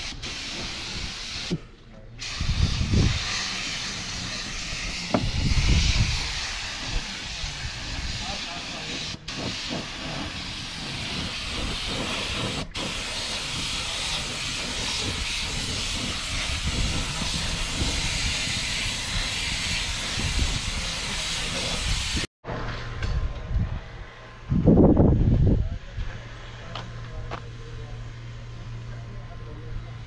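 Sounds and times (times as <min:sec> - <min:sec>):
spray gun hissing: 0:00.0 - 0:01.6, 0:02.2 - 0:22.3.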